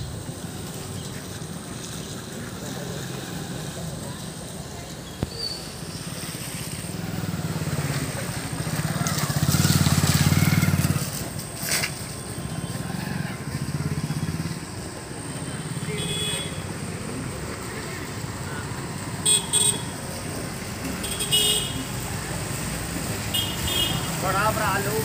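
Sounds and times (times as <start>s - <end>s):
motorcycle engine running: 6.8s - 17.2s.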